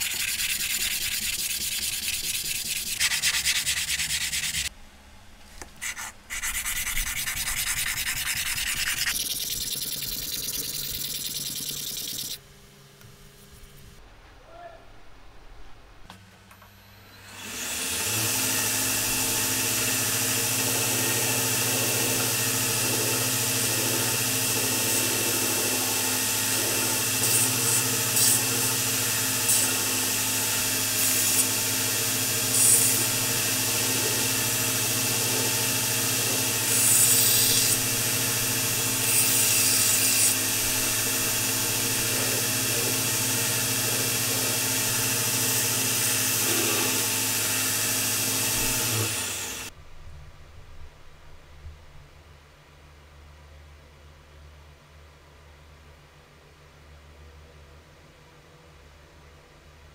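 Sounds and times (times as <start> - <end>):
belt grinder running: 0.0 - 4.7, 17.4 - 49.7.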